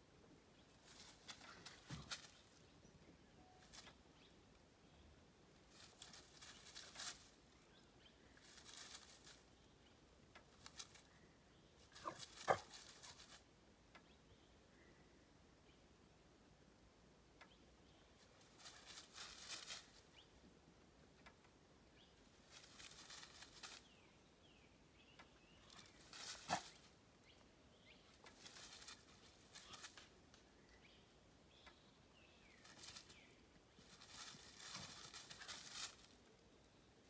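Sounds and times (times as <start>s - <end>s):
dry leaves rustling and crackling: 0.7s - 2.7s, 3.6s - 4.0s, 5.5s - 7.6s, 8.3s - 9.6s, 10.4s - 11.1s, 11.8s - 13.5s, 18.2s - 20.1s, 22.2s - 24.0s, 25.6s - 27.0s, 28.1s - 30.2s, 32.5s - 36.3s.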